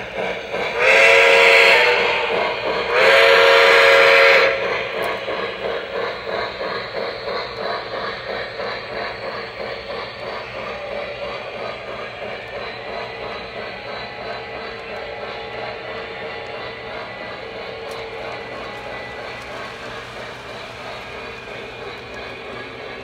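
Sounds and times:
steam chuffing: 0.0s - 23.0s
train chime whistle: 0.7s - 4.7s.

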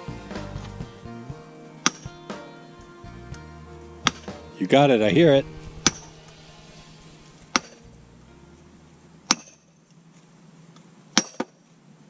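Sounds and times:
maul striking steel wedge: 9.3s - 9.7s, 11.2s - 11.5s.

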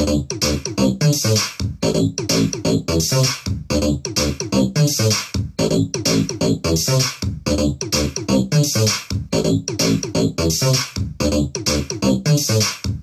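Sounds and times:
dubstep synthesizer track: 0.0s - 13.0s.

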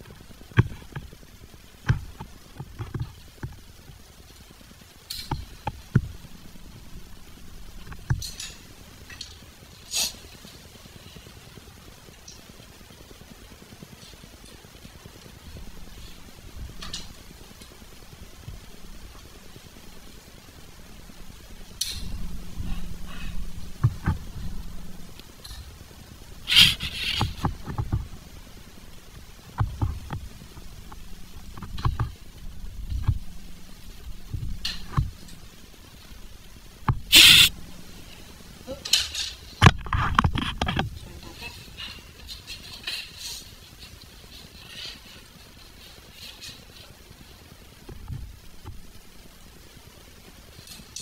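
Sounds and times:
scraping rustles: 13.5s - 49.6s.

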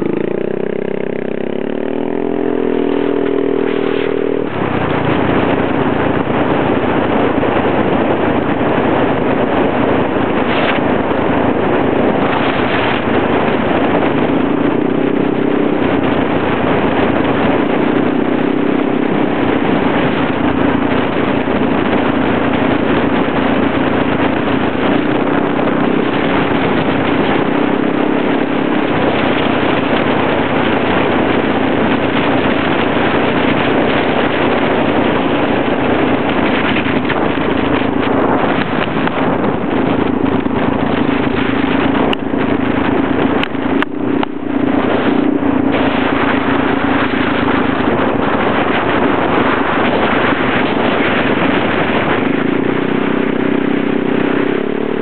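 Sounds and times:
scooter engine running: 0.0s - 55.0s
wind rushing over microphone: 0.0s - 55.0s.

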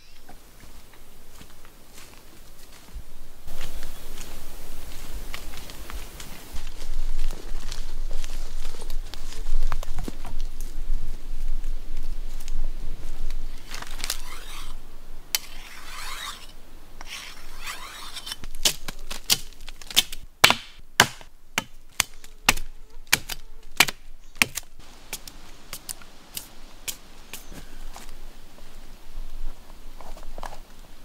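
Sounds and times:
machete scraping bark: 13.6s - 14.8s, 15.4s - 21.2s
machete striking bark: 17.0s - 27.5s.

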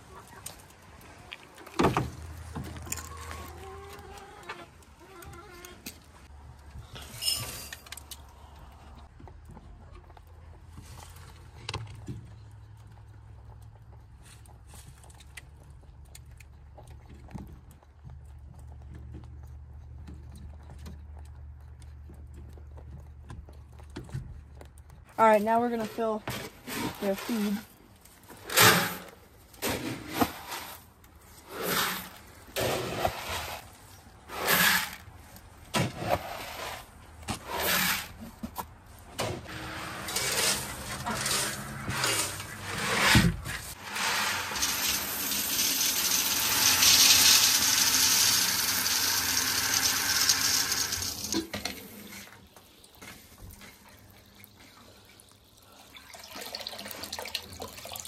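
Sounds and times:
scoop scraping in feed: 39.5s - 48.5s
feed pouring into trough: 43.8s - 52.4s, 54.8s - 58.0s
hose running water into bowl: 43.8s - 58.0s.

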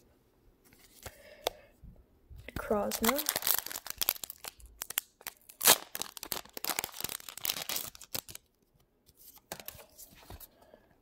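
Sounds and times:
foil wrapper crinkling and tearing: 2.8s - 8.5s.

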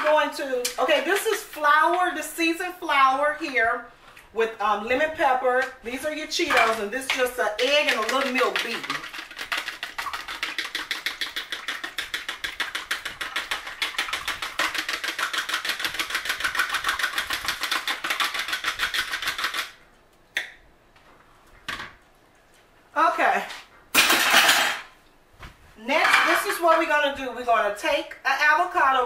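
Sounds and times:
fork beating in plastic bowl: 6.4s - 19.8s.

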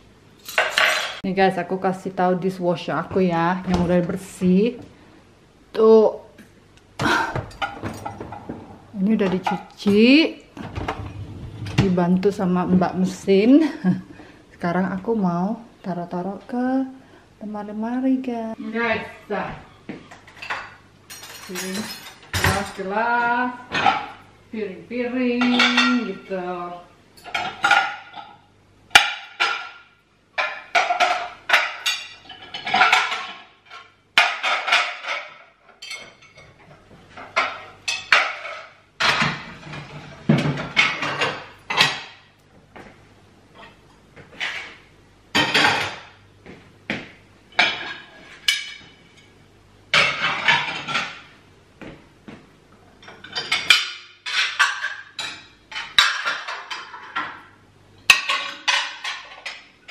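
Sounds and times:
plates and glasses clinking: 0.4s - 1.2s, 30.4s - 42.2s, 47.5s - 51.3s, 53.0s - 57.5s, 58.1s - 59.9s.

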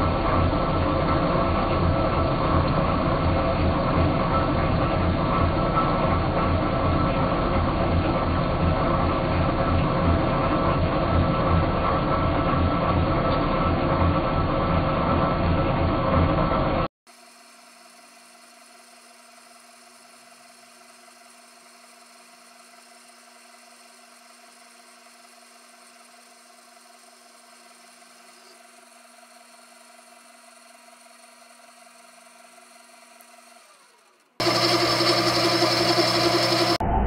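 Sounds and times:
metal lathe humming and whining: 16.6s - 36.8s.

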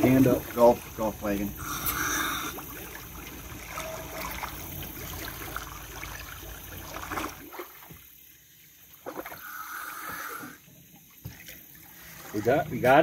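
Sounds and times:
low steady rumble: 0.0s - 7.5s
air bubbles boiling up: 0.0s - 7.7s
water splashing and bubbling: 0.0s - 13.0s.

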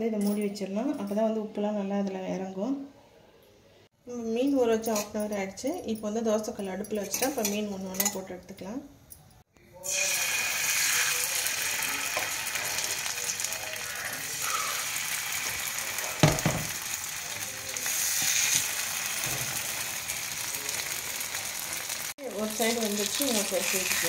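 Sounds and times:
fish sizzling in oil: 9.8s - 24.0s
loud knock: 16.2s - 16.7s.

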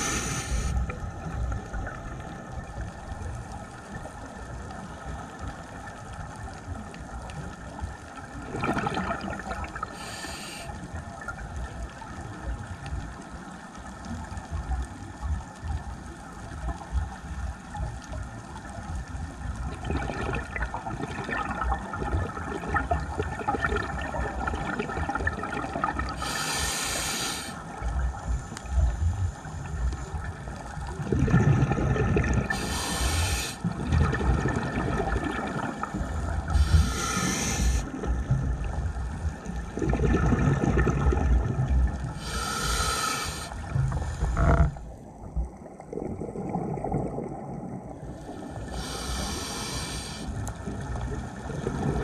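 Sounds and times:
muffled underwater hum: 0.0s - 9.0s, 9.7s - 19.7s, 24.7s - 52.0s
gurgling exhaled bubbles: 6.8s - 10.1s, 19.5s - 27.1s, 28.7s - 52.0s
regulator hissing: 32.6s - 33.6s, 36.6s - 37.8s, 42.2s - 43.6s, 48.7s - 50.3s.

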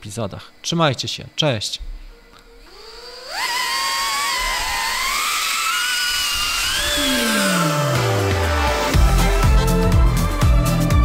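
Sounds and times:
drone motors whining: 2.6s - 10.6s
low falling sweep: 5.0s - 9.0s.

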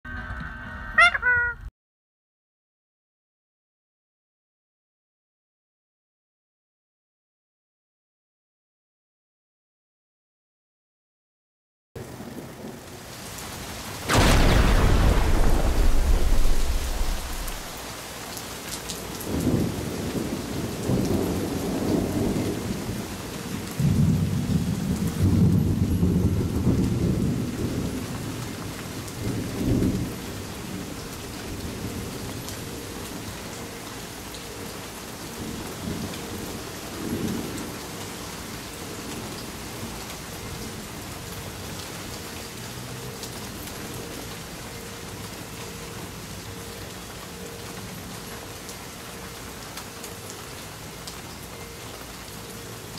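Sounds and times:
steady rain falling: 12.0s - 52.9s
rolling thunder: 14.1s - 17.8s, 19.3s - 32.4s.

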